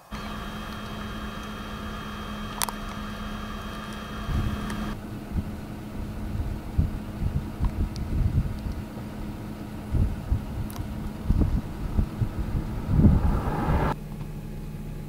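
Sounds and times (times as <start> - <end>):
click: 2.5 - 5.0, 7.6 - 8.8
wind buffeting microphone: 4.2 - 14.0
high whine: 9.2 - 14.0.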